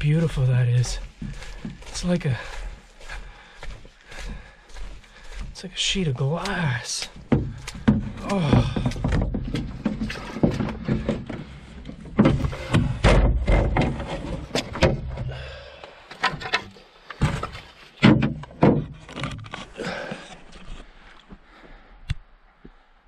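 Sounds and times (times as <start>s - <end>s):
canoe hull knocking on ground: 7.2s - 15.3s, 17.2s - 19.2s
heavy thump: 12.1s - 14.0s.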